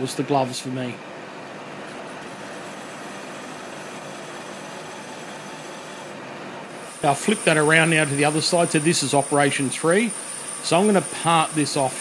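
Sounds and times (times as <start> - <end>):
lathe running: 2.2 - 12.0
file hissing on spinning metal: 2.3 - 6.1, 6.7 - 12.0.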